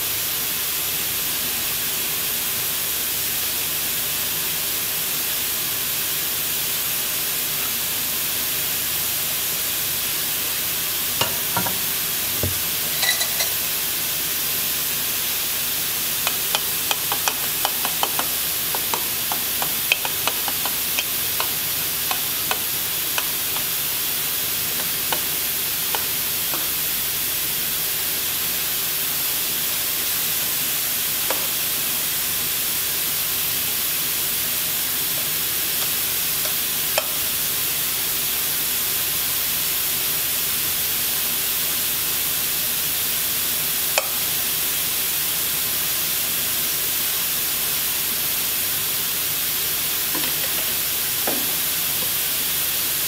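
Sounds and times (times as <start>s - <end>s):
steady hiss: 0.0s - 53.0s
metal spoon clinking: 11.2s - 11.8s, 12.9s - 13.6s.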